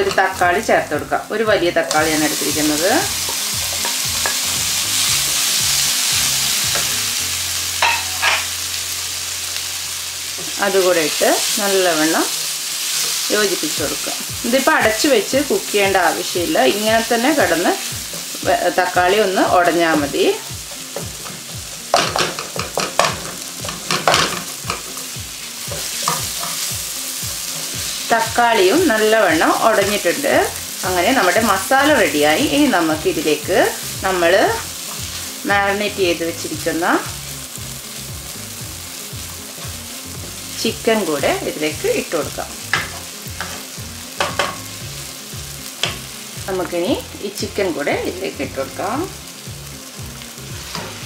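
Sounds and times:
vegetables sizzling in hot oil: 0.0 - 51.0
spatula scraping and stirring: 16.7 - 32.4, 42.7 - 44.6.

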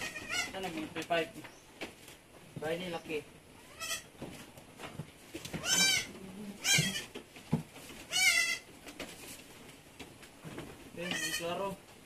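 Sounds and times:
goat kid bleating: 0.0 - 0.7, 3.6 - 4.2, 5.6 - 7.2, 8.0 - 8.7, 11.0 - 11.8.

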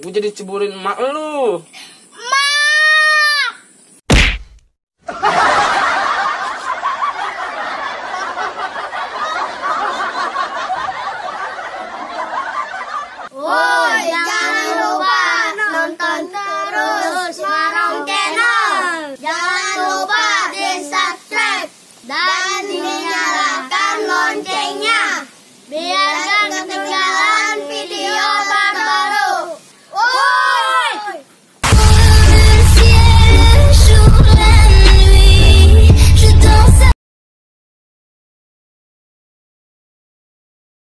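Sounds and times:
children's voices: 2.1 - 3.6, 13.3 - 31.3
children singing in unison: 13.4 - 29.6, 31.7 - 36.9.

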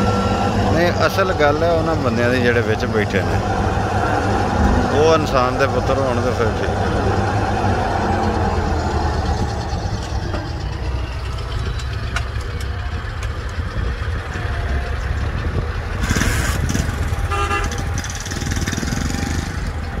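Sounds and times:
brief high tone: 0.0 - 1.2
diesel engines droning: 0.0 - 20.0.

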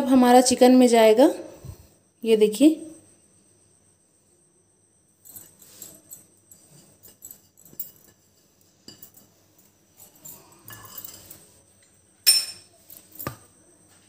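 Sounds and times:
kitchen dishes clinking: 10.6 - 11.4, 12.2 - 12.7.

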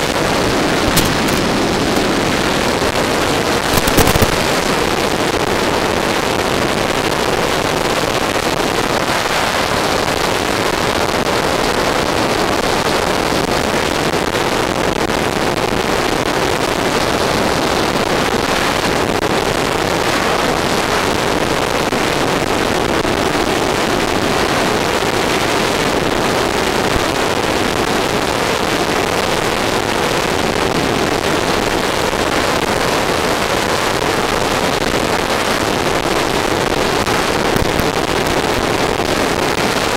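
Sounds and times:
motor and propeller: 0.0 - 5.0.

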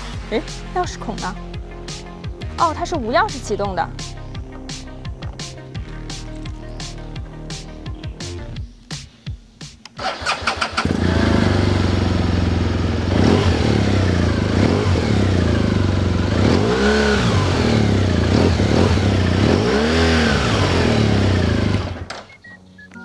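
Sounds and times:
motorcycle starter cranking: 10.0 - 11.4
motorcycle engine idling and revving: 10.0 - 22.1.

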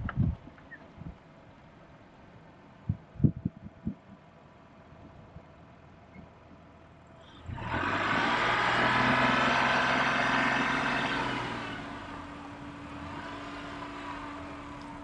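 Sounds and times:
car engine starting and running: 6.7 - 15.0.

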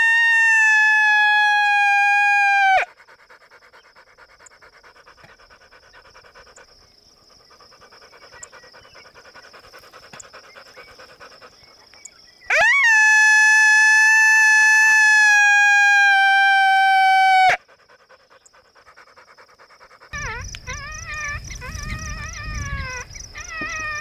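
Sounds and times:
dog panting: 2.9 - 11.9, 17.6 - 20.4.

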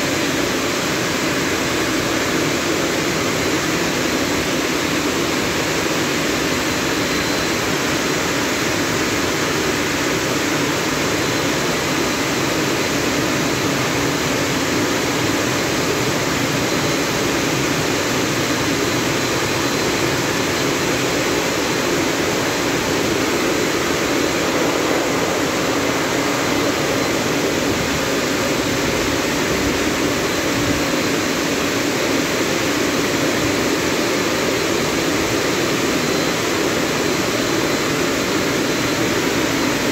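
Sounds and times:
drying blowers blasting air: 7.9 - 36.7.

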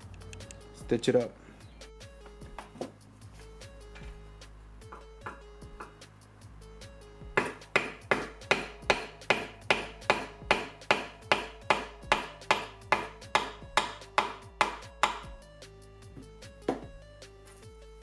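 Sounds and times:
background music: 0.0 - 18.0
mallet striking leather chisel: 4.9 - 6.0, 7.4 - 15.3, 16.6 - 16.9.

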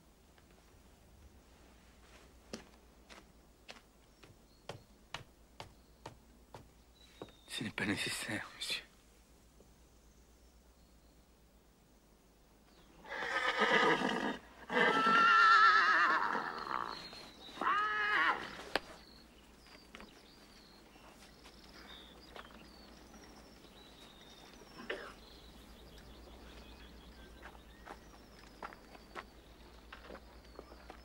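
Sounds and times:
horse whinnying: 13.0 - 18.7.

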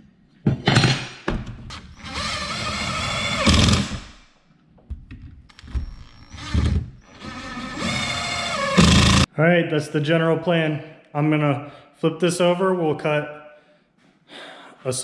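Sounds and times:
cordless drill running: 1.9 - 4.1, 5.6 - 9.3.

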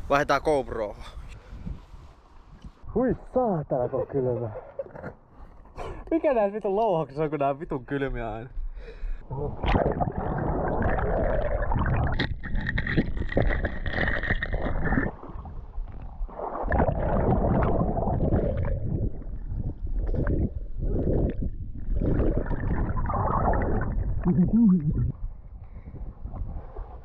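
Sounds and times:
water splashing and sloshing: 9.3 - 27.0.

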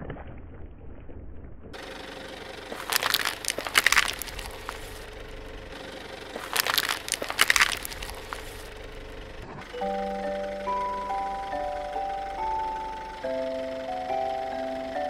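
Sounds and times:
plastic bowls crunching under tyre: 2.7 - 5.2, 6.3 - 8.8.

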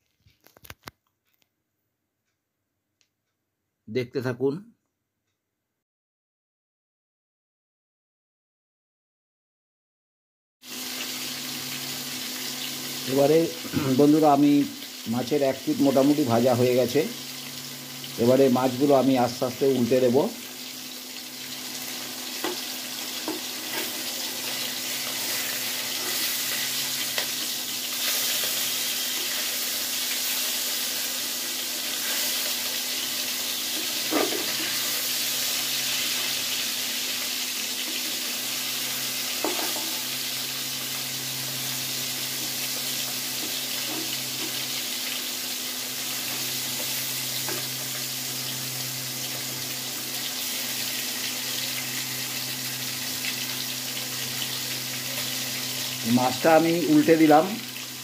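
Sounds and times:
fish sizzling in oil: 10.6 - 58.0.

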